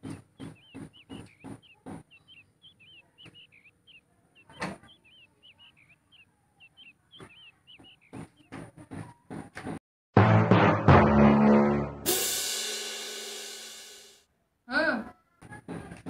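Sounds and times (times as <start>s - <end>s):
small bird chirping: 0.0s - 9.3s.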